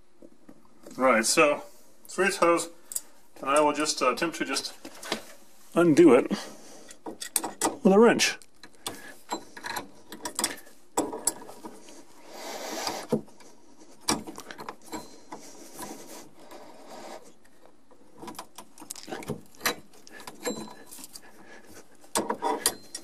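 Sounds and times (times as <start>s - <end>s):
wrench scraping rub: 11.2s - 17.4s, 20.2s - 23.0s.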